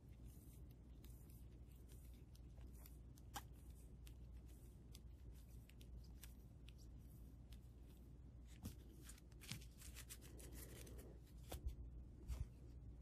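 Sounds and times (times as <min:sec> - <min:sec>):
cards rustling and clicking: 0:08.6 - 0:11.7.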